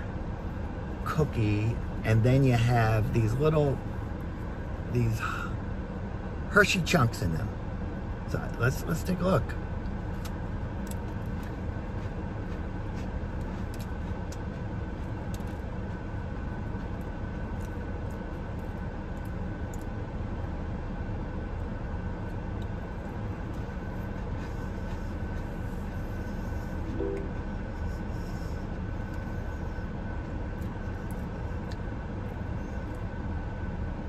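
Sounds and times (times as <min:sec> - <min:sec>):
low rumble in car cabin: 0:00.0 - 0:34.0
crunchy chewing clicks: 0:09.8 - 0:16.0, 0:30.2 - 0:33.1
faint high tone: 0:26.9 - 0:27.4.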